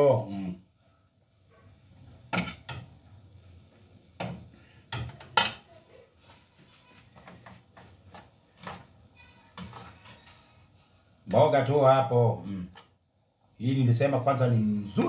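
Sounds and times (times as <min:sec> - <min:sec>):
metal utensils clinking on pans: 0:02.3 - 0:02.9, 0:04.9 - 0:05.7.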